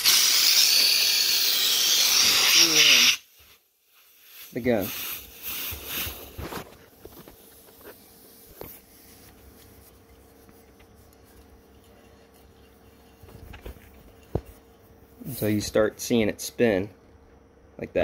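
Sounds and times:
faint steady hum: 0.0 - 18.0
rustling hiss: 2.1 - 15.8.

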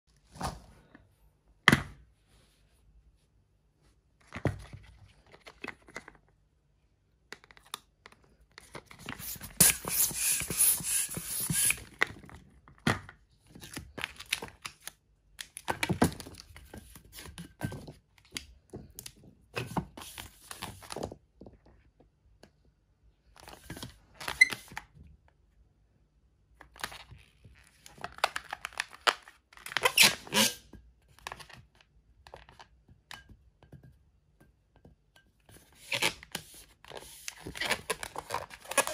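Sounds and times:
rubber balloons rustling and squeaking: 9.0 - 12.0, 29.7 - 30.7, 35.7 - 38.9
hand pump rushing air: 9.6 - 11.8.

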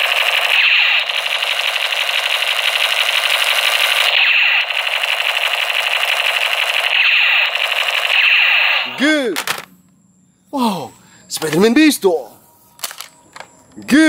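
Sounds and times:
toy machine gun rattle: 0.0 - 8.7.

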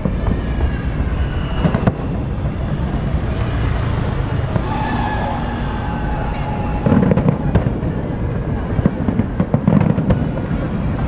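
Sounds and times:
city street traffic: 0.0 - 11.0
crowd murmur: 0.3 - 11.0
steady pitched tone: 3.0 - 8.8.

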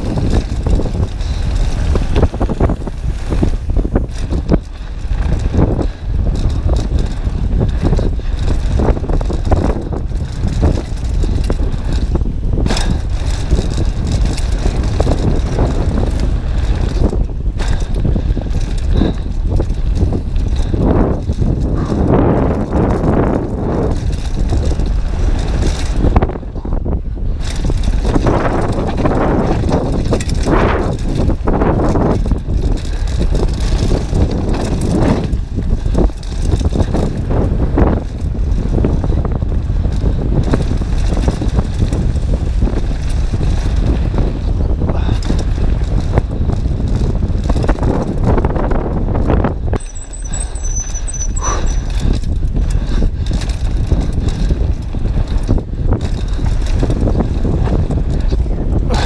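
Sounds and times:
tyres crunching on gravel: 0.0 - 26.3
bike rattling: 0.0 - 59.0
wind noise on microphone: 0.0 - 59.0.

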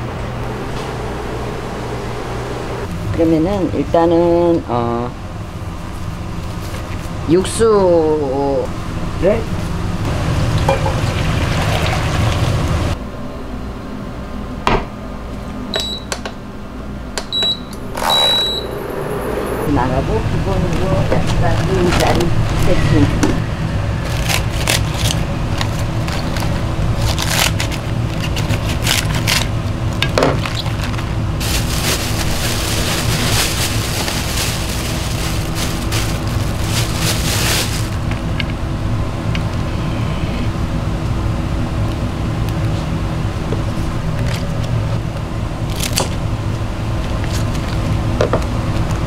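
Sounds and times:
low machine hum: 0.0 - 49.0
leaves and plastic rustling: 30.4 - 38.3.

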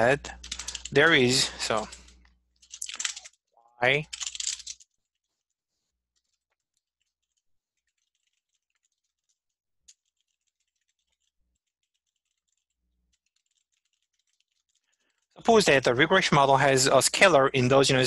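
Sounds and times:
computer keyboard typing: 0.3 - 3.4, 4.0 - 4.9, 7.0 - 14.8.

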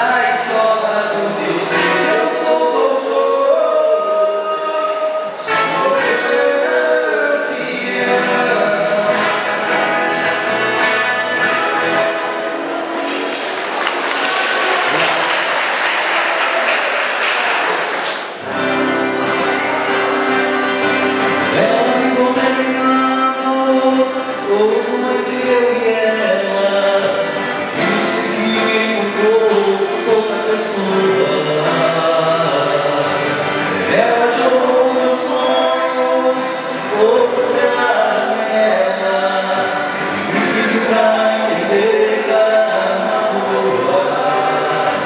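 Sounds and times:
two men singing together: 0.0 - 11.1, 21.5 - 45.0
strummed acoustic guitars: 0.0 - 16.1, 16.7 - 45.0
applause: 13.0 - 18.5.

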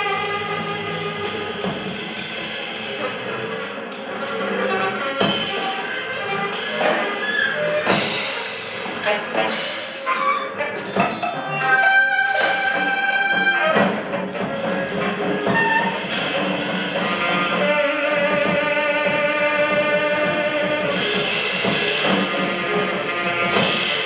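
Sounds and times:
drum and cymbal strikes: 0.0 - 24.0
saxophone long notes: 15.2 - 24.0.

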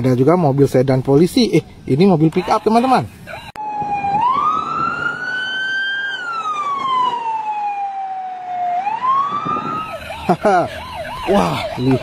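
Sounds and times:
electronic siren wailing: 3.3 - 12.0.

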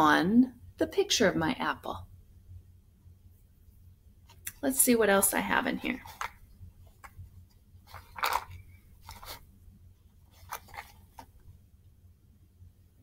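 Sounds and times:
hands rummaging in plastic tub: 7.9 - 9.4, 10.3 - 11.4.

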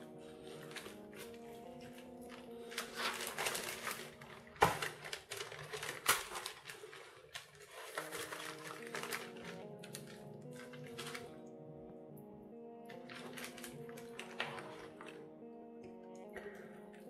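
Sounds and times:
baking paper rustling: 0.0 - 11.4, 12.9 - 15.2
soft background music: 0.0 - 17.0.

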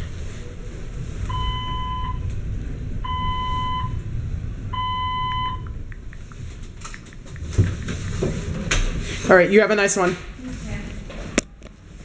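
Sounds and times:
low rumble of elevator cab: 0.0 - 9.3
elevator beeping: 1.2 - 2.4, 3.0 - 7.9.

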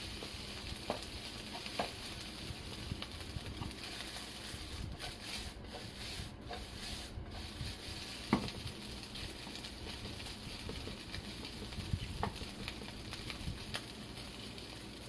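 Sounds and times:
spatula scraping rice in pan: 0.1 - 15.0
pan knocking on cooktop: 0.8 - 2.0, 8.3 - 8.6, 9.8 - 13.0.

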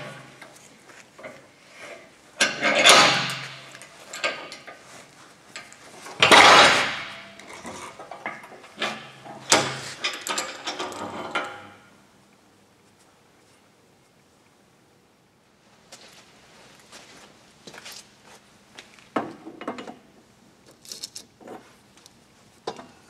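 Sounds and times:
metal scraping and knocking: 1.2 - 4.8, 6.0 - 11.8.

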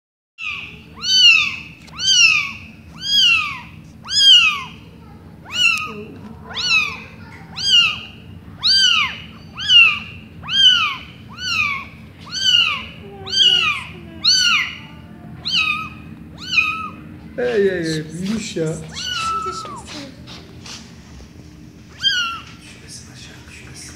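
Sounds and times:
kitten meowing: 0.4 - 4.8, 5.4 - 17.0, 18.8 - 20.1, 21.9 - 22.6.

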